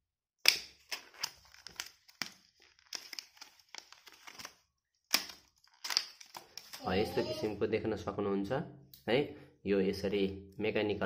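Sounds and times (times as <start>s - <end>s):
plastic packaging crinkling: 0.8s - 6.9s
plastic snapping: 5.1s - 6.8s.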